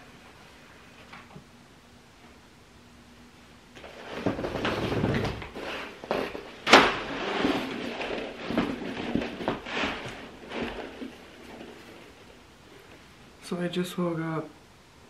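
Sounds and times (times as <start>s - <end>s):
window blinds rustling and clattering: 3.8s - 13.1s.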